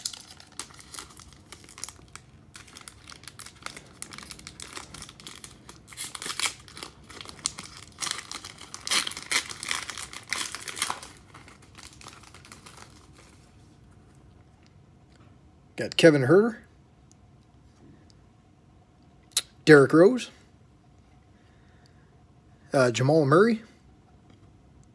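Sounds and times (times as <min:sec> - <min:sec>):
foil wrapper tearing and crinkling: 0:00.0 - 0:13.4.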